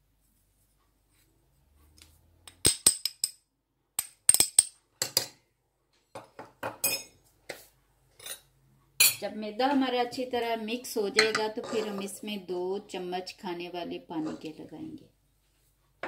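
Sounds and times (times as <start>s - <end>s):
kitchenware clinking on steel bowl: 6.6s - 7.2s, 8.2s - 9.2s, 11.1s - 12.1s.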